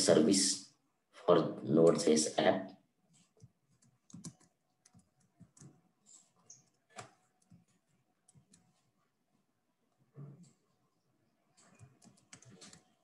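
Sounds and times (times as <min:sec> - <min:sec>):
computer keyboard keystrokes: 0:03.4 - 0:05.8, 0:11.6 - 0:13.0.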